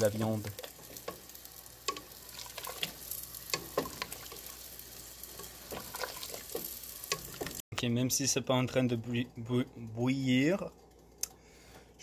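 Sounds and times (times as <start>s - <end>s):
wooden spoon scraping a pot: 5.3s - 7.6s.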